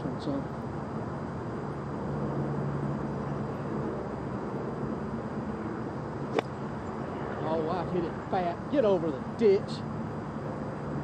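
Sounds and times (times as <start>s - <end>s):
steady low hum: 0.0s - 11.0s
golf club striking ball: 6.3s - 6.9s.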